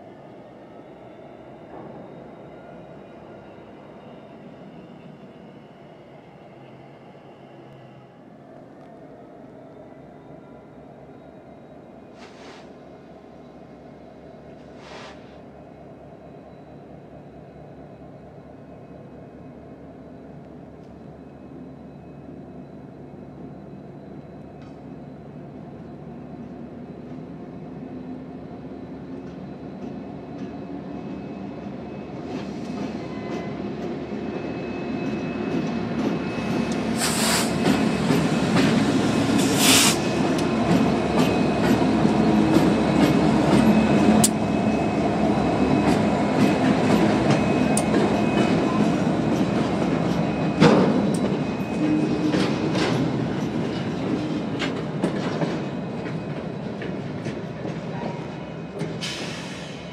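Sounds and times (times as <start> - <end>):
diesel locomotive engine rumble: 0.0 - 59.9
short loud hisses: 12.2 - 12.8, 14.8 - 15.4, 37.0 - 37.6, 39.5 - 40.0.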